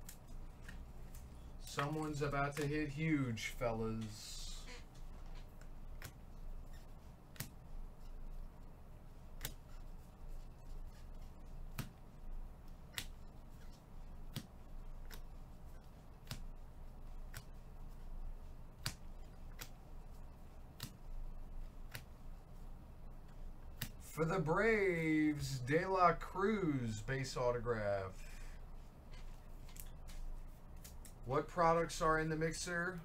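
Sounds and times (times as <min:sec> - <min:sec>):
steady low hum: 0:00.0 - 0:33.0
cards clicking as flipped: 0:07.3 - 0:07.6, 0:09.3 - 0:09.8, 0:11.6 - 0:12.0, 0:12.7 - 0:15.3, 0:16.2 - 0:16.5, 0:18.8 - 0:19.8, 0:20.7 - 0:21.1, 0:21.8 - 0:22.2, 0:29.6 - 0:31.2.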